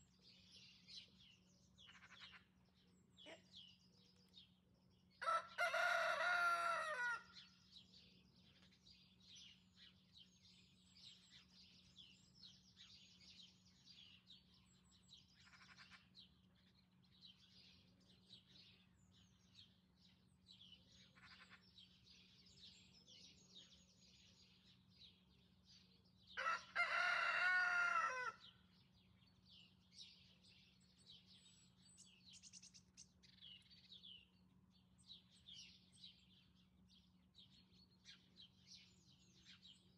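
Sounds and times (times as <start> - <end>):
small birds chirping: 0.0 - 39.9
rooster crowing: 5.2 - 7.4, 26.4 - 28.5.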